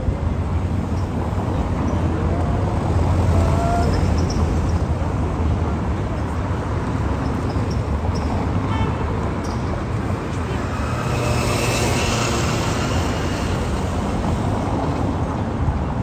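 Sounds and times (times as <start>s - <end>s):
low traffic rumble: 0.0s - 16.0s
faint voices: 1.2s - 4.3s.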